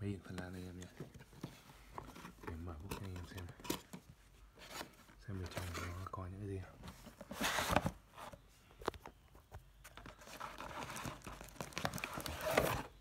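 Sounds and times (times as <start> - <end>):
cardboard rustling and scraping: 0.4 - 13.0
plastic bag crinkling: 10.1 - 13.0.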